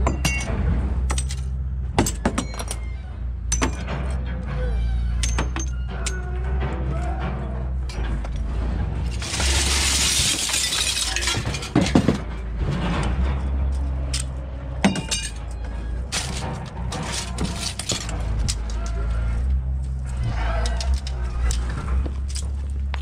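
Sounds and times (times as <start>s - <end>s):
broken glass sliding and crunching: 9.0s - 14.3s, 14.9s - 19.1s.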